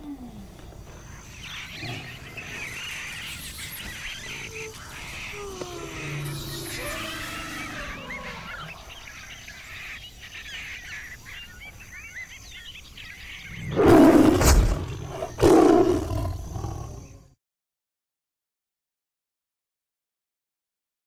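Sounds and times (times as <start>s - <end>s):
birds chirping: 0.0s - 17.4s
tiger roaring: 4.2s - 9.0s, 13.5s - 17.2s.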